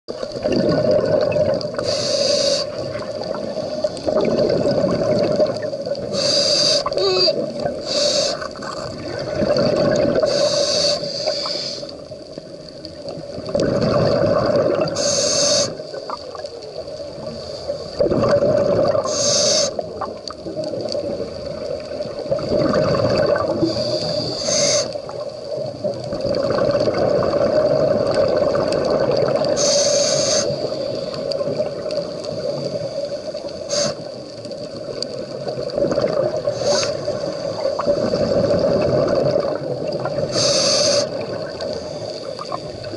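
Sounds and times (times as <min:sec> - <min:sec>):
bubbling exhaust: 0:00.4 - 0:01.8, 0:04.1 - 0:06.3, 0:08.6 - 0:10.3, 0:13.4 - 0:15.0, 0:18.0 - 0:19.2, 0:22.3 - 0:24.4
regulator inhale hiss: 0:01.8 - 0:04.1, 0:06.0 - 0:08.9, 0:10.2 - 0:12.2, 0:14.9 - 0:16.3, 0:17.2 - 0:18.0, 0:19.0 - 0:20.0, 0:23.6 - 0:25.2, 0:29.5 - 0:31.5, 0:32.1 - 0:34.4, 0:36.4 - 0:38.6, 0:40.2 - 0:42.9.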